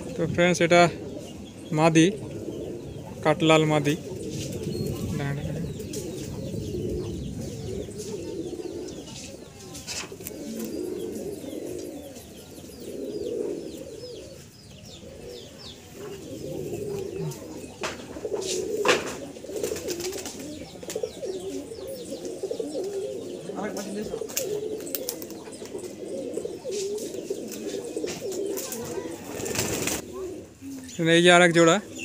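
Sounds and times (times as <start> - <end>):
pigeons cooing: 0.0 - 32.0.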